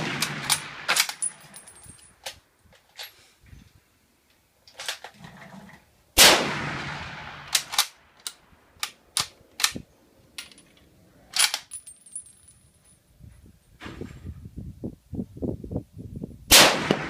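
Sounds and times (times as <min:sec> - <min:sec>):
rifle shot echoing: 0:00.0 - 0:01.2, 0:06.2 - 0:07.9, 0:16.5 - 0:17.0
rifle bolt metallic clicks: 0:00.2 - 0:03.1, 0:07.4 - 0:09.8, 0:10.4 - 0:11.9
sharp crack: 0:06.2 - 0:09.8.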